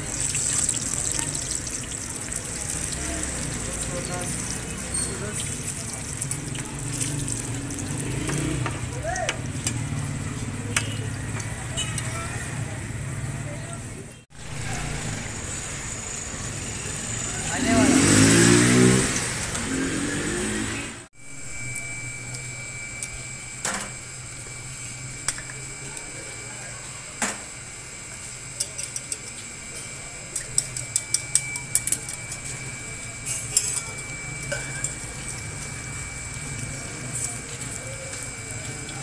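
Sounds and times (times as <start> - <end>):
motor vehicle: 0.0 - 23.2
utensils and crockery clinking: 28.1 - 35.8.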